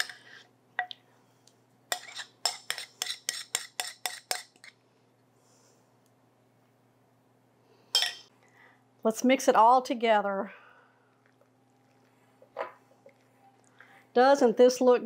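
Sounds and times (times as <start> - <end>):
utensil scraping glass bowl: 1.9 - 4.7.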